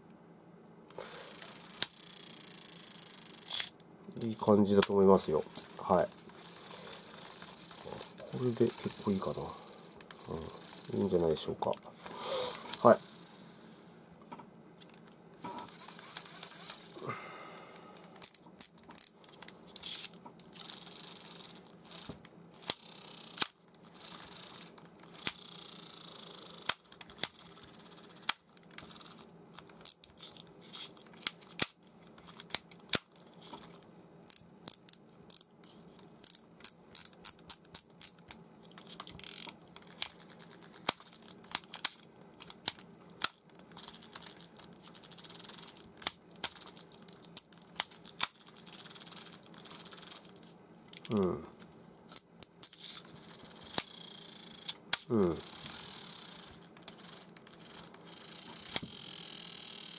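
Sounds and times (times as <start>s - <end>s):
fishing reel clicking: 0.9s - 4.3s, 5.9s - 11.4s, 12.6s - 13.6s, 16.1s - 17.0s, 19.8s - 29.2s, 34.3s - 35.5s, 36.2s - 38.2s, 39.0s - 40.0s, 45.0s - 46.8s, 48.5s - 50.3s, 52.4s - 59.9s
reel rubbing: 5.5s - 13.8s, 55.3s - 59.9s.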